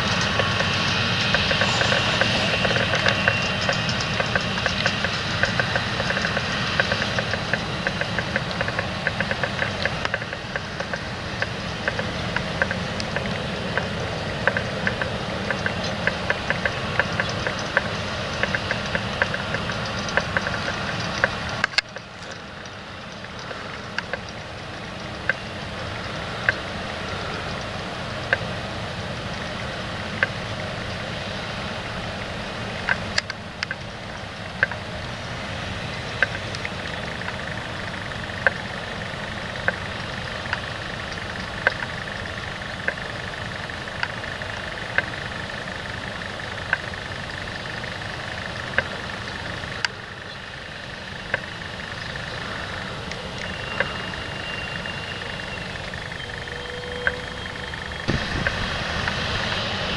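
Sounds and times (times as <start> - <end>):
sharp clicks: 0.0 - 25.4
tractor engine working: 0.0 - 59.9.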